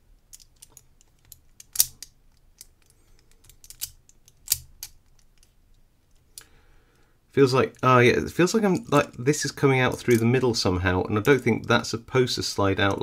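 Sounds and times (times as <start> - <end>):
metal puzzle pieces clicking: 0.3 - 5.5.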